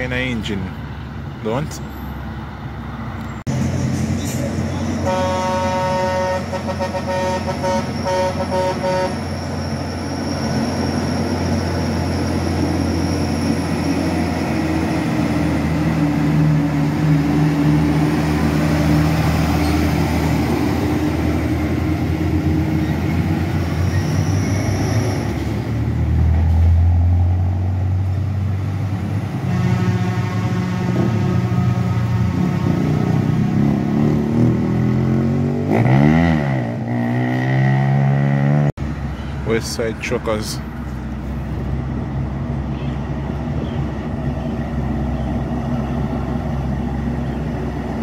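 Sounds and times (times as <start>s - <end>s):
diesel truck driving past: 0.0s - 48.0s
vehicle horn tooting: 5.0s - 9.3s, 29.5s - 32.8s.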